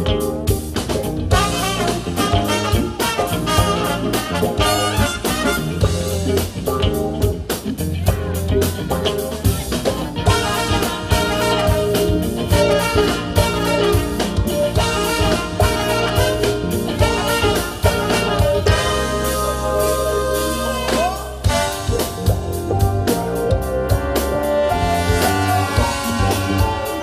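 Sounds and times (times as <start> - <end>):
bass guitar: 0.0 - 27.0
drum kit steady beat: 0.0 - 27.0
horn section playing: 1.3 - 6.3, 10.3 - 27.0.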